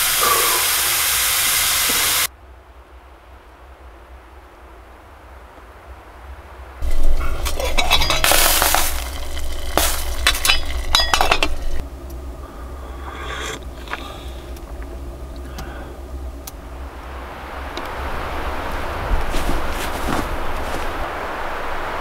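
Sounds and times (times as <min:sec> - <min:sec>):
drinking from steel mug: 0:00.2 - 0:00.8
metal kettle clinking and scraping: 0:06.8 - 0:11.8.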